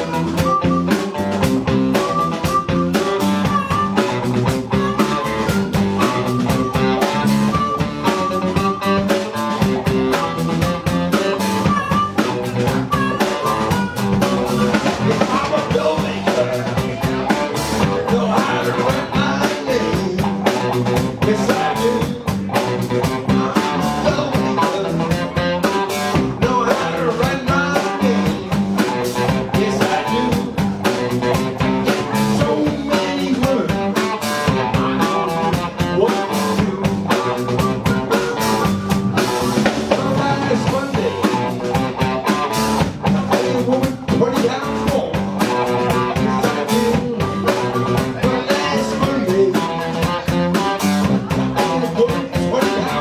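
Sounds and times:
bass guitar: 0:00.0 - 0:53.0
drum kit beat: 0:00.0 - 0:53.0
electric guitars: 0:00.0 - 0:53.0.

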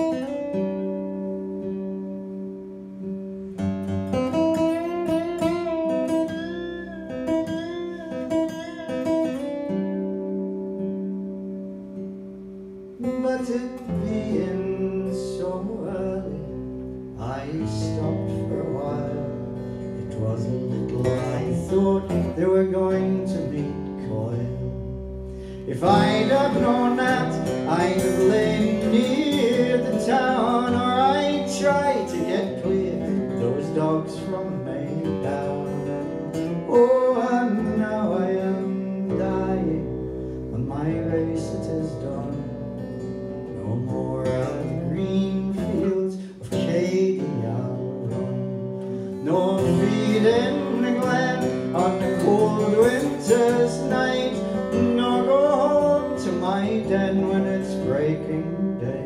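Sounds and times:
acoustic guitar playing: 0:00.0 - 0:59.0.

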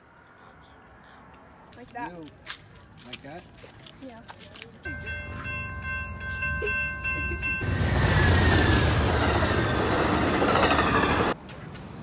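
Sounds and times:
railroad crossing bell ringing: 0:04.8 - 0:08.3
train wheels rushing on rails: 0:07.5 - 0:11.4.

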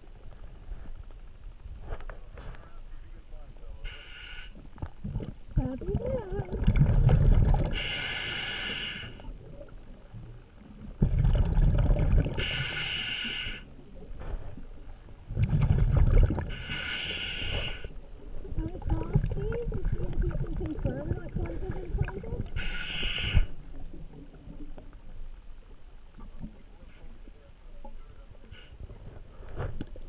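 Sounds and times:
regulator hiss: 0:03.8 - 0:04.6, 0:07.7 - 0:09.3, 0:12.3 - 0:13.8, 0:16.5 - 0:18.0, 0:22.5 - 0:23.8
low bubbling rumble: 0:04.6 - 0:08.0, 0:09.1 - 0:12.6, 0:13.7 - 0:16.7, 0:17.9 - 0:30.0.

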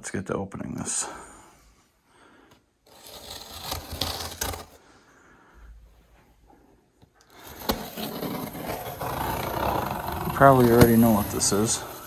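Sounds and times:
knife cutting tape and cardboard: 0:02.9 - 0:04.8, 0:07.3 - 0:12.0
cardboard box handling: 0:08.4 - 0:11.6.

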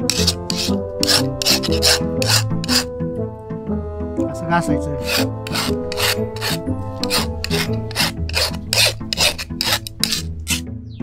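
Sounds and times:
file rasping on sickle blade: 0:00.0 - 0:03.0, 0:05.0 - 0:10.6
background music: 0:00.0 - 0:11.0.

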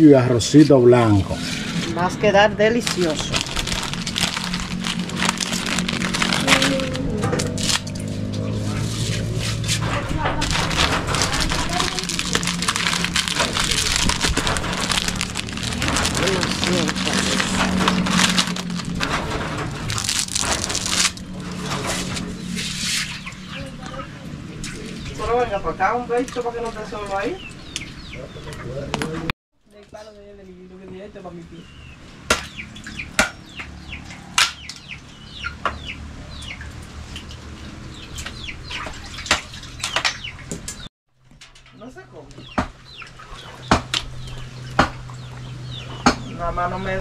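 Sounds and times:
dry spaghetti snapping: 0:02.9 - 0:08.1, 0:10.4 - 0:19.2, 0:19.8 - 0:21.4
chickens chirping: 0:22.2 - 0:29.3, 0:31.5 - 0:40.9, 0:42.3 - 0:47.0.

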